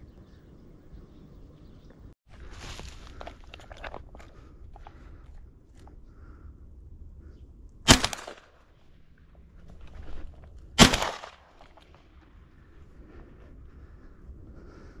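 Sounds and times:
shotgun shots with echo: 7.9 - 8.5, 10.8 - 11.8.

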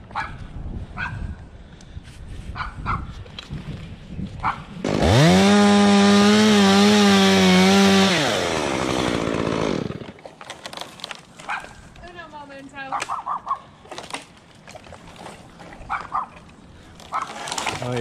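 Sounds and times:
dog barking: 0.1 - 0.4, 1.0 - 1.2, 2.6 - 3.1, 4.4 - 4.6, 11.5 - 11.8, 12.9 - 13.7, 15.9 - 16.4, 17.1 - 17.4
chainsaw revving: 4.8 - 10.2.

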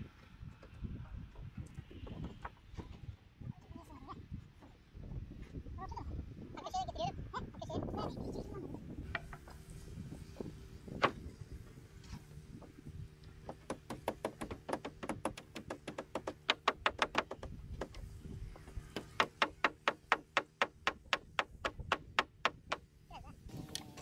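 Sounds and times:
hammer driving nails: 13.4 - 22.9.

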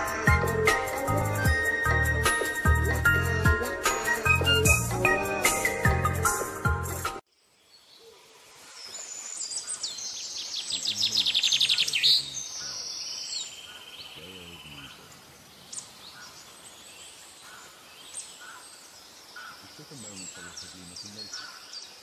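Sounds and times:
birds singing: 7.3 - 22.0
faint low calls: 14.1 - 15.6.

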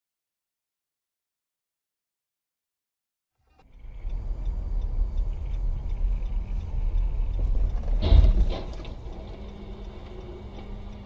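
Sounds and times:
car engine and road rumble: 3.4 - 11.0.

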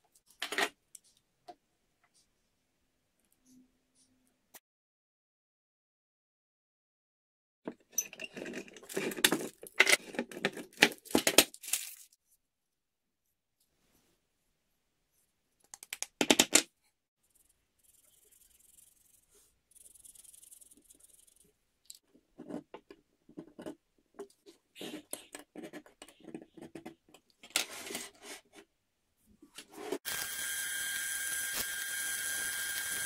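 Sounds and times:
marker scratching on steel: 17.2 - 21.6.

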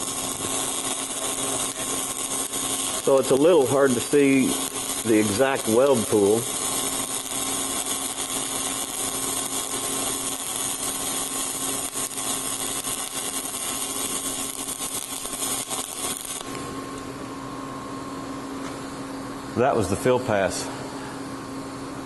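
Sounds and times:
welding arc hissing and crackling: 0.0 - 16.9
steady low hum: 0.0 - 22.0.

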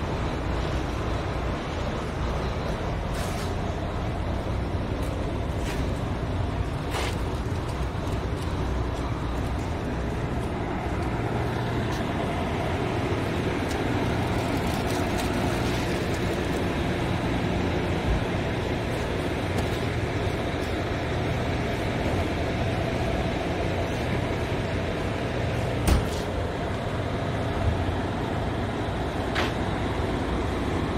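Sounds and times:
diesel truck engine idling: 0.0 - 30.9.

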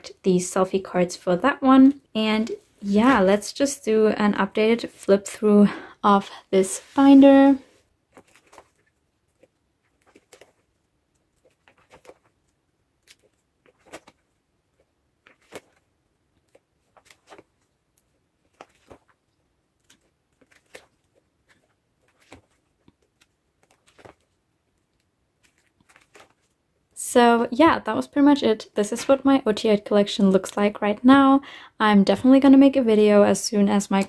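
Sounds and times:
plastic binder pages turning: 8.1 - 26.6.

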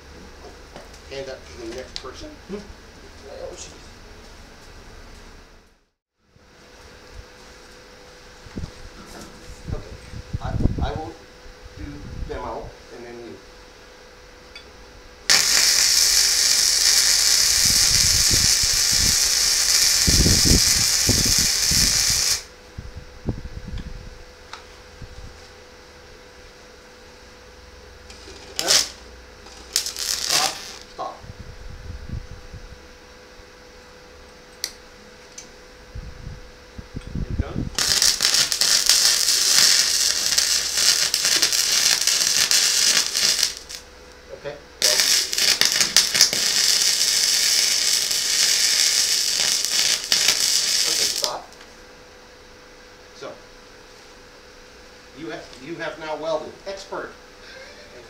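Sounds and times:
welding arc sizzling hiss: 0.0 - 5.8, 15.2 - 22.7, 24.4 - 31.2, 37.4 - 51.8, 53.1 - 58.0
low welding pops: 15.3 - 22.5, 28.1 - 31.1, 37.7 - 43.9, 44.8 - 51.4.

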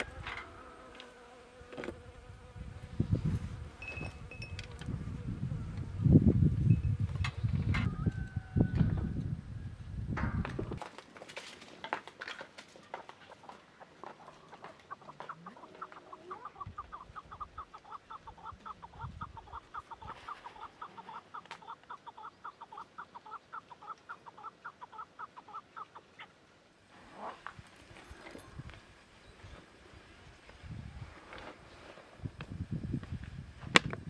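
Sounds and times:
chickens clucking: 12.8 - 26.4.

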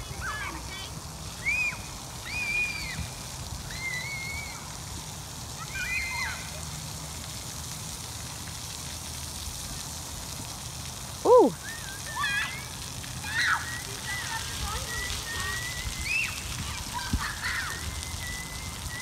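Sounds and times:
fountain spray: 0.0 - 19.0
distant children shrieking: 3.7 - 4.8.

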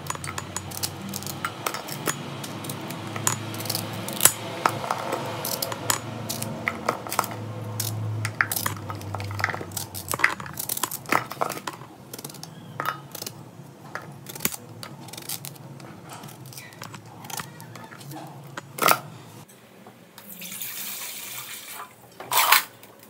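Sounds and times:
knife cutting bananas: 0.0 - 13.4
pieces tapping metal pot: 0.0 - 19.1.

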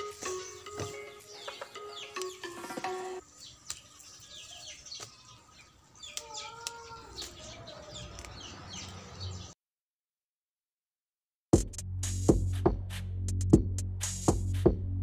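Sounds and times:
birds chirping: 0.0 - 9.6.

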